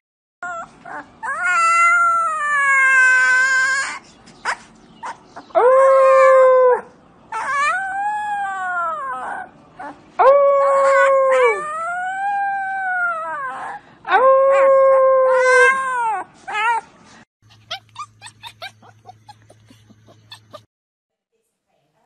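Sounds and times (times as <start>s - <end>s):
puppy howling: 0.4s - 4.0s, 5.0s - 16.8s, 17.5s - 20.7s
puppy yipping: 0.4s - 5.6s, 7.3s - 10.0s, 15.6s - 20.7s.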